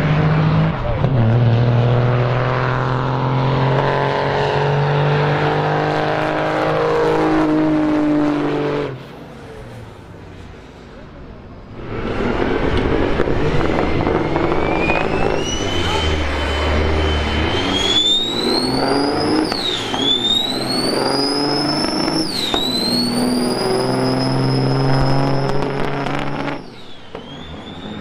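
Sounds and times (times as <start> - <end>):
diesel truck accelerating: 0.0 - 28.0
turbo whine: 11.6 - 28.0.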